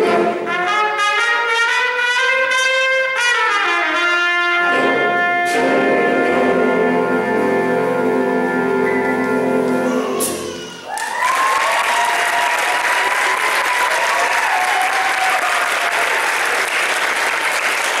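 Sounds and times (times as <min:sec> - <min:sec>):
jazz big band chord: 0:00.0 - 0:10.6
audience cheering: 0:09.9 - 0:18.0
audience applause: 0:10.8 - 0:18.0.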